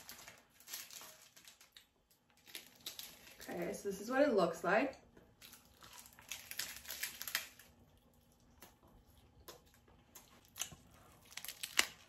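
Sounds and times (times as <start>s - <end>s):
seaweed wrapper crackling bite: 5.4s - 8.8s, 9.5s - 12.0s.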